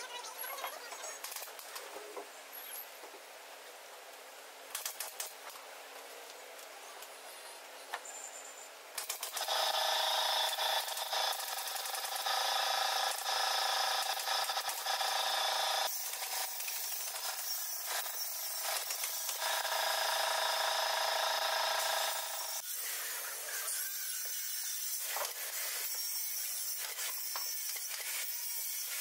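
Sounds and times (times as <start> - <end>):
power tool whine: 9.1 - 29.0.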